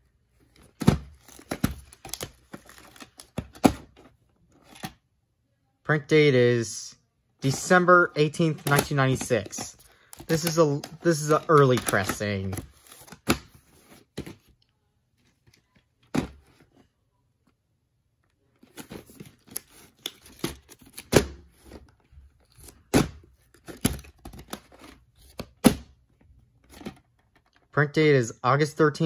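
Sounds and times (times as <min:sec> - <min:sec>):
plastic cases clicking and knocking: 0:08.3 - 0:13.5.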